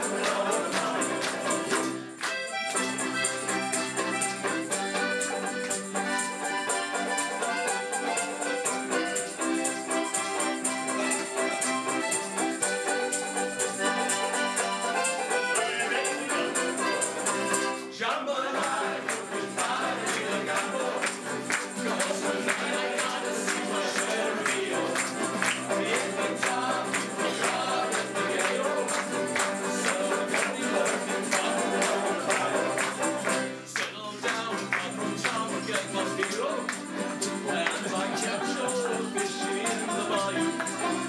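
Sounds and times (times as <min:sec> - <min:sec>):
men singing together: 0:00.0 - 0:01.9, 0:15.6 - 0:17.3, 0:17.9 - 0:41.0
guitar strumming: 0:00.0 - 0:18.0, 0:18.6 - 0:33.8, 0:34.4 - 0:41.0
accordion: 0:00.0 - 0:41.0
banjo strumming: 0:00.0 - 0:41.0.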